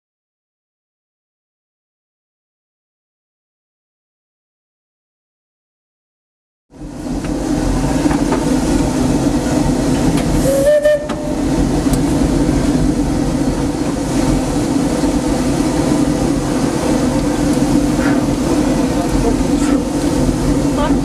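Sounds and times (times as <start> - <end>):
steam locomotive rumble and hiss: 6.7 - 21.0.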